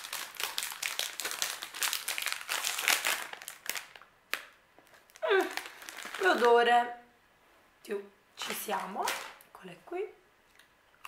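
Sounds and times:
plastic snack packet crinkling: 0:00.0 - 0:06.7.

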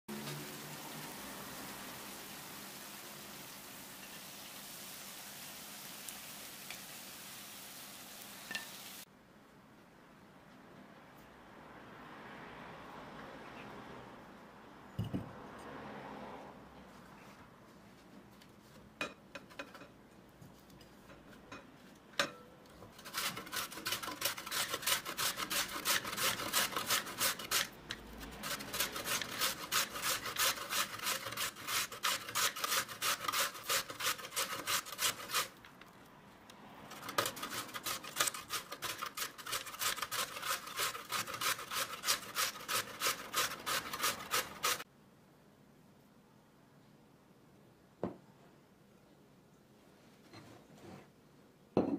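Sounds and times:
potatoes grated on metal grater: 0:22.9 - 0:35.6, 0:36.9 - 0:44.8.

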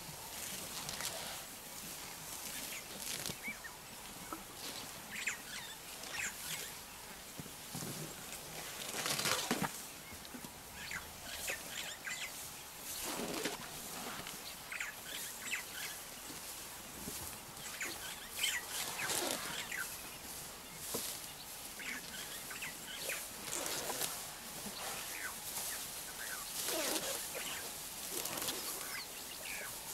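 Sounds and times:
rustling through grass: 0:00.0 - 0:29.9
elephants tearing grass: 0:00.4 - 0:01.5, 0:02.4 - 0:03.5, 0:07.8 - 0:09.7, 0:12.9 - 0:14.3, 0:18.0 - 0:19.9, 0:21.8 - 0:29.6.

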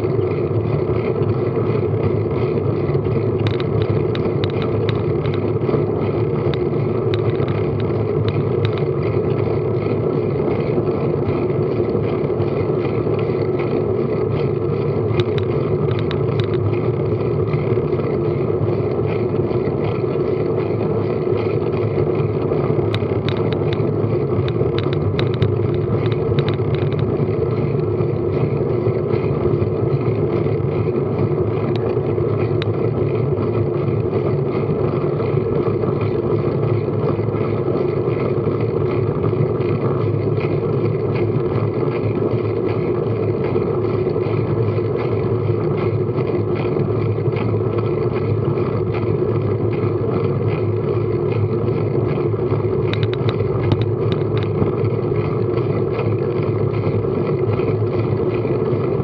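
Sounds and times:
road rumble: 0:00.0 - 0:59.0
light ticks: 0:52.9 - 0:54.7.

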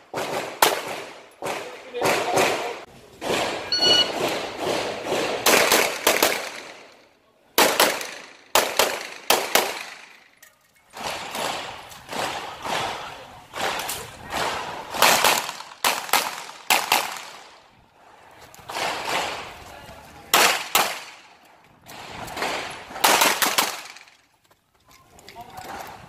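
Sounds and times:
pistol shots echoing: 0:00.1 - 0:06.9, 0:07.6 - 0:10.2, 0:20.3 - 0:21.3, 0:21.9 - 0:24.1.

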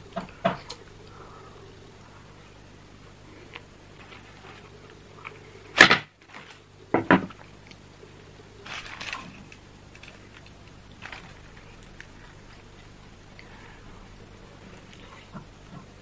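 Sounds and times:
baking paper rustling: 0:03.4 - 0:06.8, 0:08.6 - 0:13.0.

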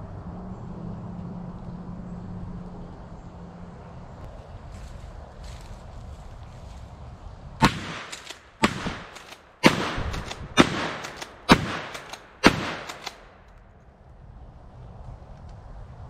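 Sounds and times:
shotgun shots: 0:07.6 - 0:13.4.

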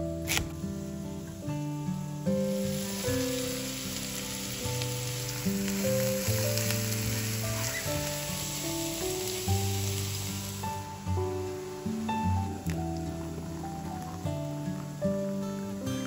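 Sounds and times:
background music: 0:00.0 - 0:16.0
vegetables sizzling in a frying pan: 0:00.3 - 0:15.8.

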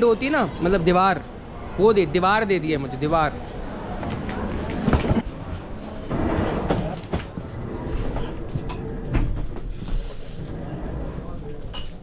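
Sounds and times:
footsteps: 0:04.0 - 0:11.0.

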